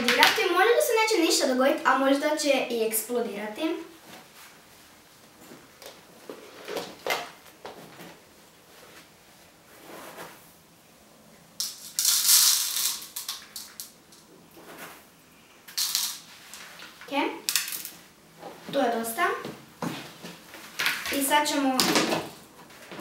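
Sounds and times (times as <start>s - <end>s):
cloth rustling: 4.0s - 10.7s, 14.5s - 15.2s.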